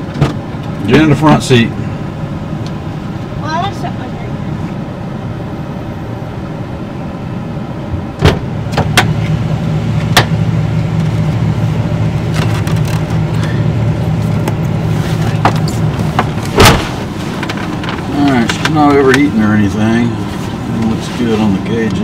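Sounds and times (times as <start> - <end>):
air conditioning running: 0.0 - 22.0
engine idling: 0.0 - 22.0
car door shutting thump: 0.1 - 0.4, 8.2 - 9.1, 15.4 - 17.1
car door opening click: 15.4 - 17.0.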